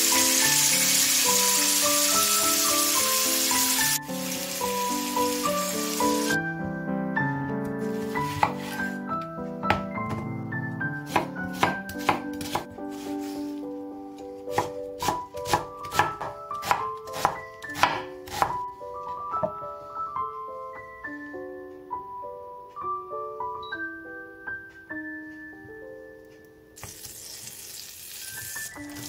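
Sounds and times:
light background music: 0:00.0 - 0:29.0
knife chopping on cutting board: 0:08.0 - 0:09.0, 0:11.1 - 0:13.4, 0:14.5 - 0:18.6.

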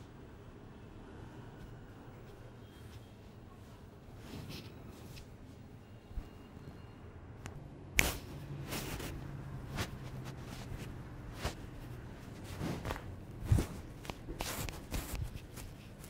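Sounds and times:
massage cracks and taps: 0:12.9 - 0:16.0.

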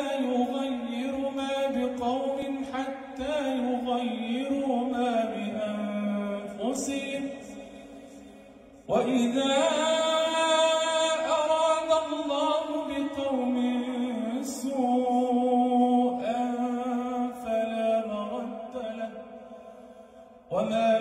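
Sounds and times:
man chanting melodically: 0:00.0 - 0:19.5, 0:20.3 - 0:21.0.

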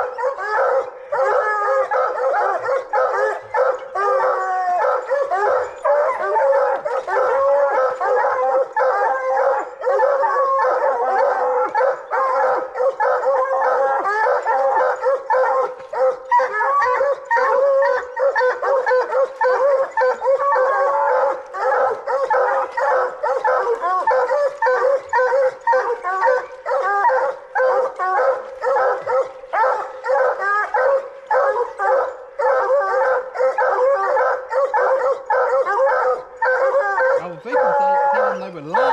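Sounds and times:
hounds barking: 0:00.0 - 0:38.9.

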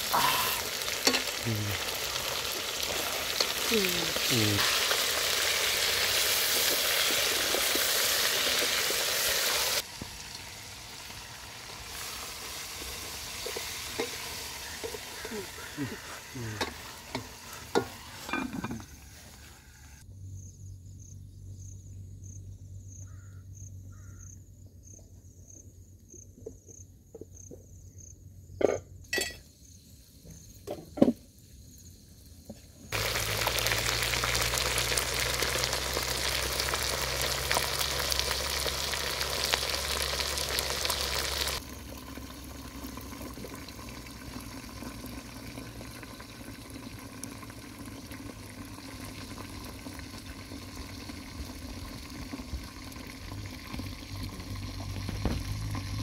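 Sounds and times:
food sizzling over fire: 0:00.0 - 0:20.1, 0:29.1 - 0:56.0
spoon and lid clattering on pot: 0:16.6 - 0:18.9, 0:28.6 - 0:29.4.

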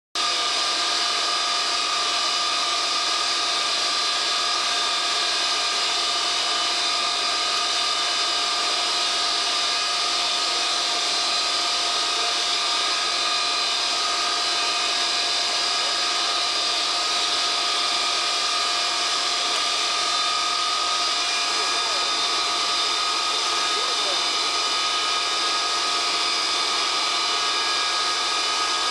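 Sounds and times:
jet engines whining: 0:09.0 - 0:28.9.

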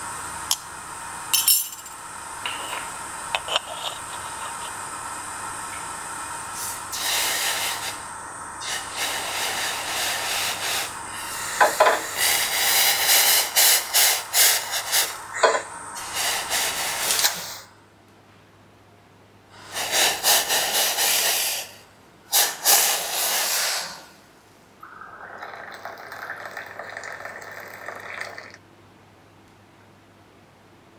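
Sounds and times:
loud uneven hissing: 0:00.0 - 0:17.7, 0:19.6 - 0:24.2.

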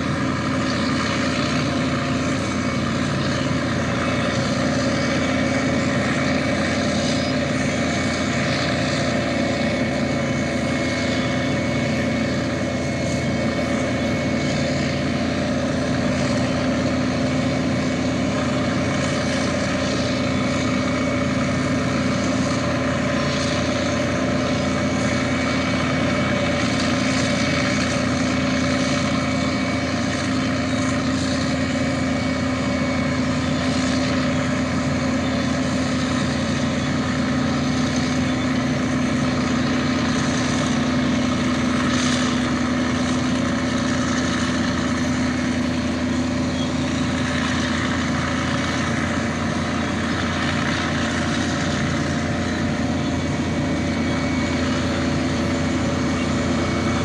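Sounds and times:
diesel machine engines droning: 0:00.0 - 0:57.0.

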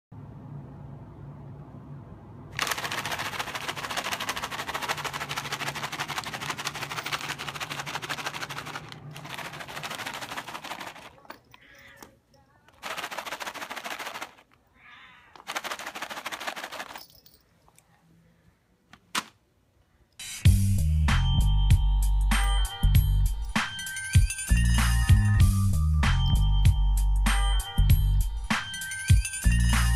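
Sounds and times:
plastic bag crinkling and rattling: 0:02.6 - 0:14.6, 0:15.3 - 0:17.4
cat meowing faintly: 0:14.7 - 0:15.4.

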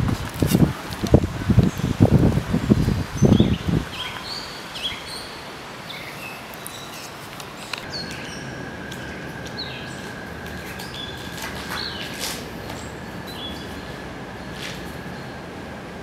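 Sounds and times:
steady hiss: 0:00.0 - 0:16.0
songbirds chirping: 0:01.0 - 0:16.0
steady high tone: 0:07.6 - 0:16.0.

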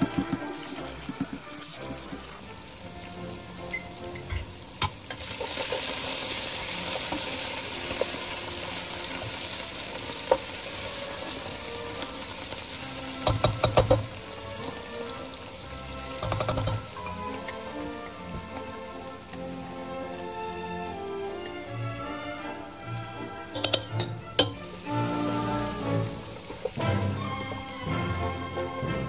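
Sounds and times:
wooden spoon stirring: 0:00.0 - 0:04.4, 0:05.2 - 0:19.4, 0:23.5 - 0:27.9
onions sizzling in a pan: 0:00.0 - 0:28.8
faint background music: 0:00.0 - 0:29.0.

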